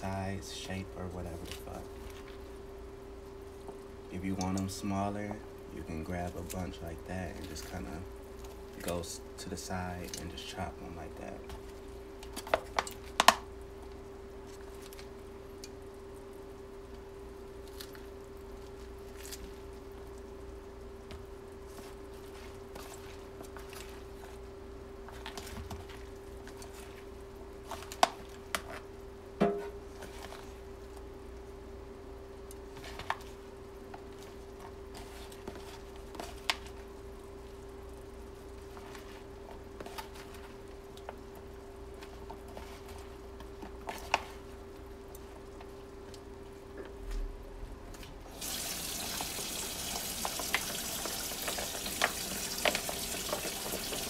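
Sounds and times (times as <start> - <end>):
steady hum: 0.0 - 54.0
faucet water running into sink: 48.3 - 54.0.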